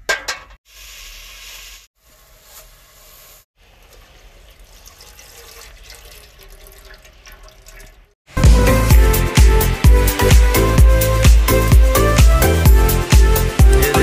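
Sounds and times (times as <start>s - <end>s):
milk pouring into tea: 3.6s - 8.0s
liquid bubbling: 3.6s - 8.2s.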